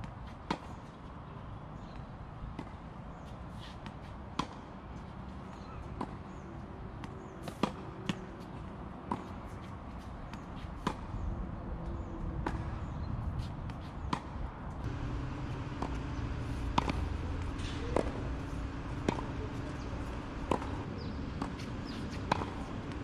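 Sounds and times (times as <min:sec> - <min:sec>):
outdoor background noise: 0:00.0 - 0:23.0
tennis ball bouncing: 0:13.7 - 0:23.0
racket hitting tennis ball: 0:13.8 - 0:23.0.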